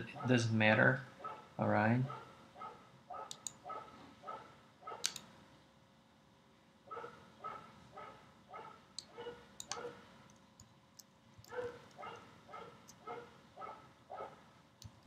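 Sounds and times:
faint dog barking: 0:00.0 - 0:05.2, 0:06.9 - 0:10.0, 0:11.5 - 0:14.5.

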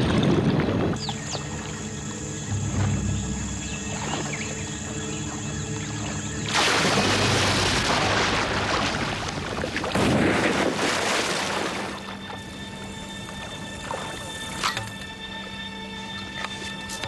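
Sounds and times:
water splashing and churning: 0:00.0 - 0:15.5
dramatic music: 0:01.8 - 0:09.4.

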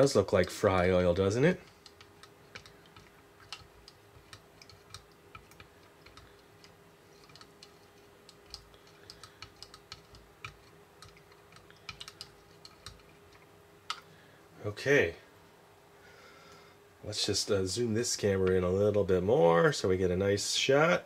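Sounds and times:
faint steady hum: 0:00.0 - 0:21.0
plastic stirrer clicking: 0:01.6 - 0:14.1.

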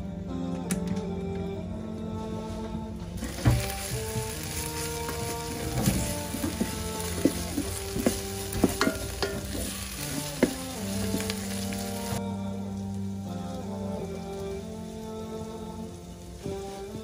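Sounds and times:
onions sizzling in oil: 0:03.2 - 0:17.0
wooden spoon tapping pot: 0:05.1 - 0:11.4.

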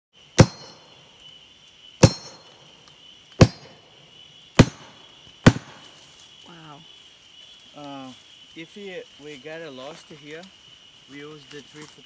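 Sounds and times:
sharp knocks on tree root: 0:00.4 - 0:00.8, 0:02.0 - 0:02.5, 0:03.4 - 0:03.8, 0:04.6 - 0:05.9.

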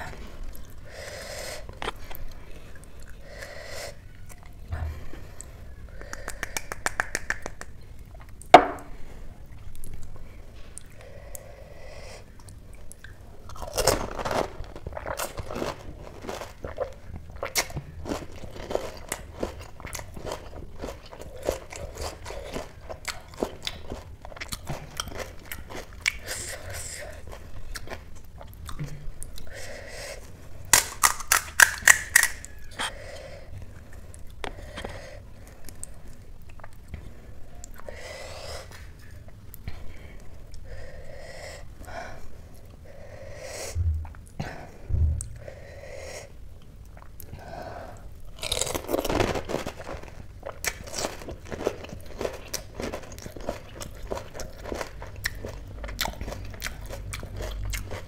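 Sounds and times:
crunchy food being chewed: 0:09.4 - 0:38.0, 0:46.5 - 0:47.4, 0:48.0 - 0:58.0.

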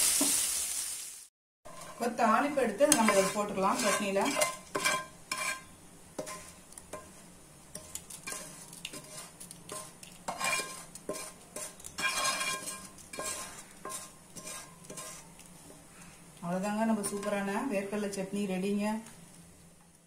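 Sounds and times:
light sizzle of oil: 0:00.0 - 0:20.0
metal spoon scraping frying pan: 0:01.7 - 0:07.2, 0:07.8 - 0:15.3, 0:17.0 - 0:17.5.

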